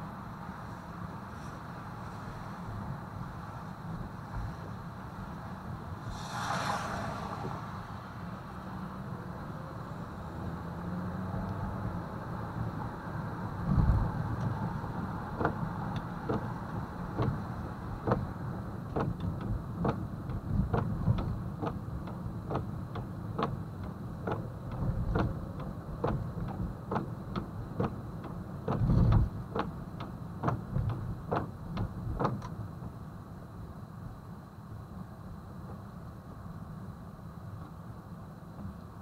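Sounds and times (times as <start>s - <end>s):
car turn signal clicking: 15.4s - 16.5s, 17.2s - 17.4s, 18.0s - 18.3s, 18.9s - 32.6s.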